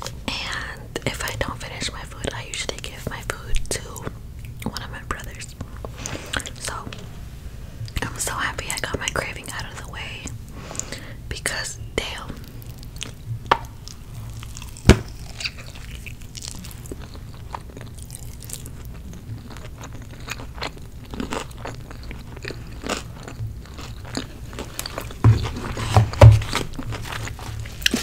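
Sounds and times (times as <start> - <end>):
close chewing and crunching: 12.1 - 28.0.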